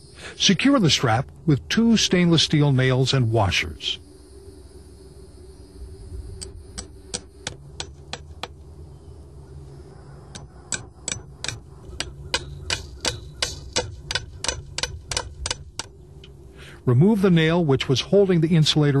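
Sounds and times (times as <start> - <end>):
hammer tapping nails into wood: 10.7 - 15.9.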